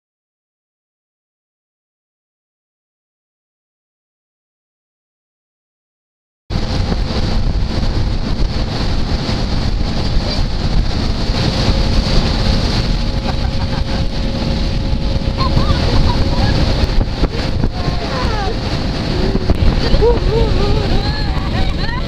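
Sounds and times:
faint outboard motor drone: 0:06.5 - 0:22.0
water rushing: 0:06.5 - 0:22.0
wind buffeting microphone: 0:06.5 - 0:22.0.

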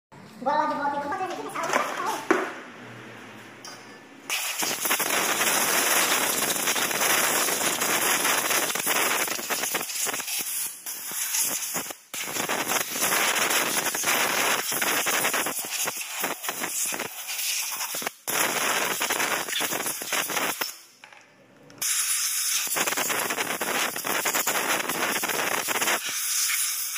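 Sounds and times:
compressed air blow gun hissing: 0:04.3 - 0:18.1, 0:21.8 - 0:26.9.

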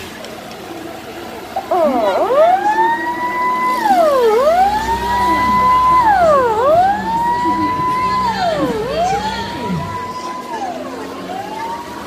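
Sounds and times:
emergency vehicle siren: 0:01.5 - 0:12.0.

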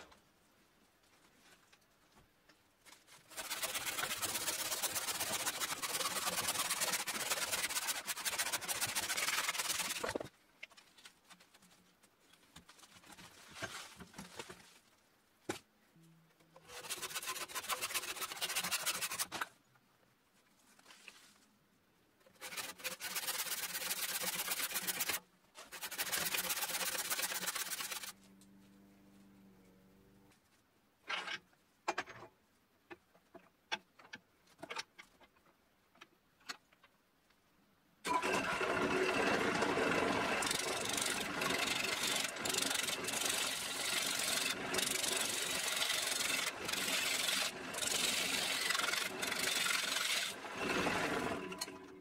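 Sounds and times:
saw rasping through wood: 0:03.3 - 0:10.2, 0:16.6 - 0:19.5, 0:22.3 - 0:28.2, 0:38.8 - 0:51.4.

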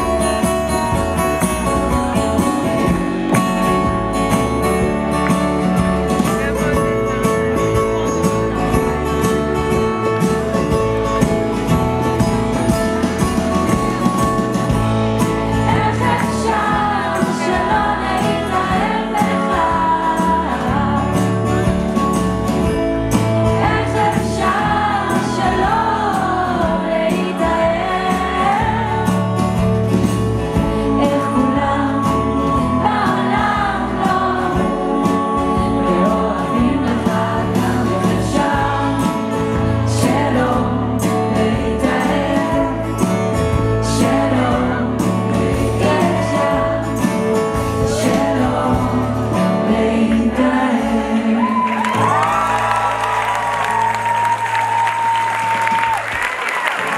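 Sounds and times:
double bass: 0:00.0 - 0:56.3
acoustic guitar: 0:00.0 - 0:56.9
drums: 0:00.0 - 0:56.9
woman singing: 0:15.5 - 0:21.7, 0:23.5 - 0:29.4, 0:30.6 - 0:43.2, 0:43.8 - 0:51.9.

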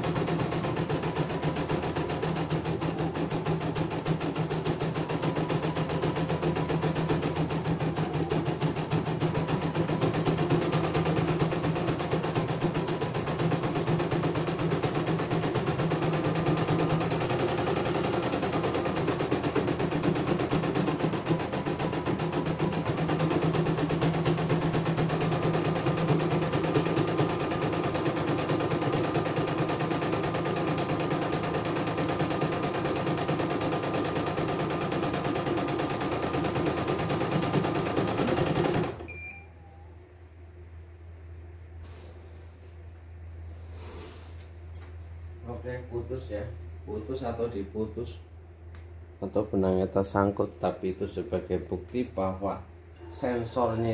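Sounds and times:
low machine hum: 0:00.0 - 0:53.9.

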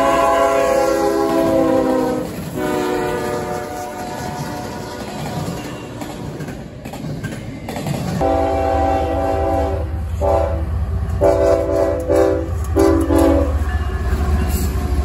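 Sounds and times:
locomotive horn blasts: 0:00.0 - 0:05.0, 0:08.2 - 0:13.6
freight train wheels rumbling: 0:00.0 - 0:15.0
train rumble: 0:00.0 - 0:15.0.

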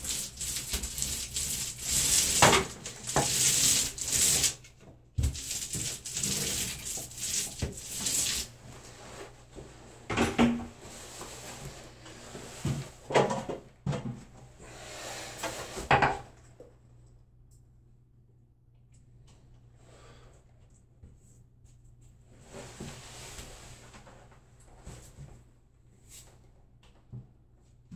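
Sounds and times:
paint roller hissing on wall: 0:00.0 - 0:04.6, 0:05.2 - 0:09.2.

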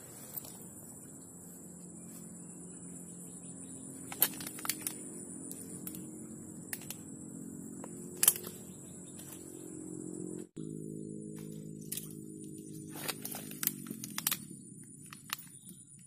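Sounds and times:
high-pitched insect chorus: 0:00.0 - 0:16.0
sharp clicks: 0:04.1 - 0:06.1, 0:08.2 - 0:08.6, 0:13.1 - 0:16.0.

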